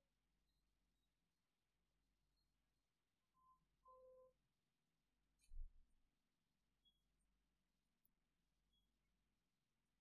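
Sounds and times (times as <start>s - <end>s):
faint electronic beeps: 3.2s - 4.4s, 6.8s - 7.1s, 8.6s - 9.1s.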